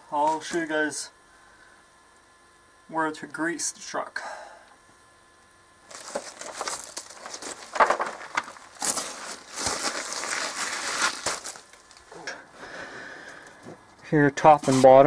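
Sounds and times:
clothing rustle: 0:05.9 - 0:12.1
gravel crunching and scraping: 0:05.9 - 0:12.2.

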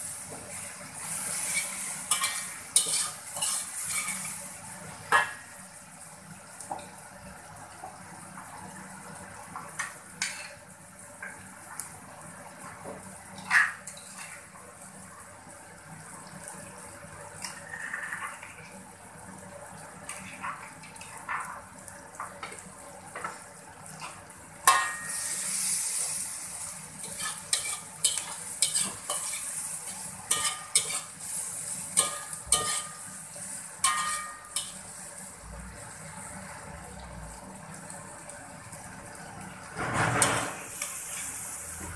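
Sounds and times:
oil sizzling: 0:00.0 - 0:41.9
metal spatula scraping a wok: 0:01.3 - 0:04.4, 0:27.0 - 0:33.0, 0:33.8 - 0:34.8.

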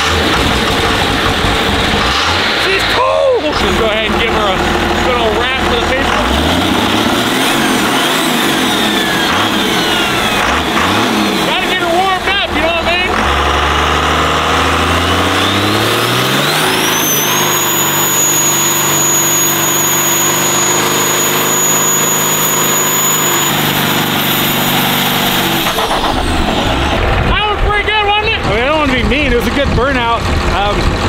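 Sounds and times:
diesel engine revving: 0:00.0 - 0:31.0
turbo whistle: 0:15.3 - 0:23.6.

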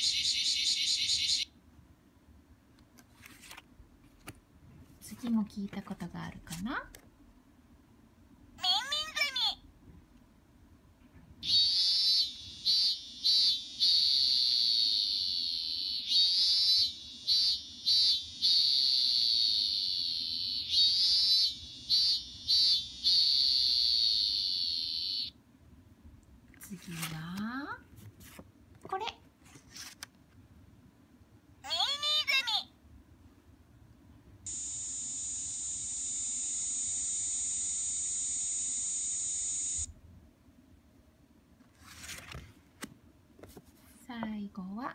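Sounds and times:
cicada call from small speaker: 0:00.0 - 0:01.5, 0:11.4 - 0:25.4, 0:34.5 - 0:39.9.

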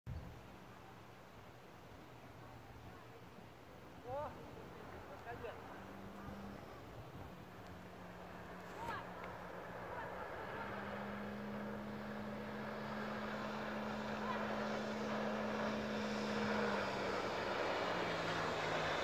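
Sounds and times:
outboard motor running: 0:04.0 - 0:19.0.

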